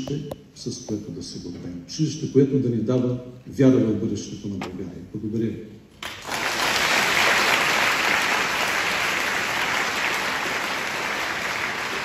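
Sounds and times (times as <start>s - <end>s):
audience applauding: 6.0s - 12.0s.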